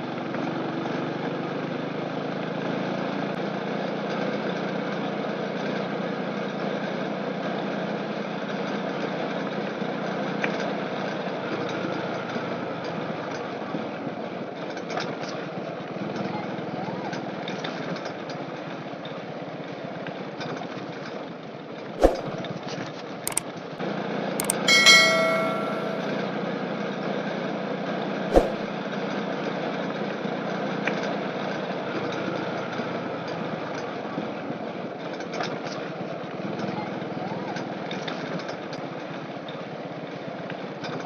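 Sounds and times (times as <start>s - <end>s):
sharp clicks: 24.4s - 26.0s
bell-like chime: 24.4s - 26.2s.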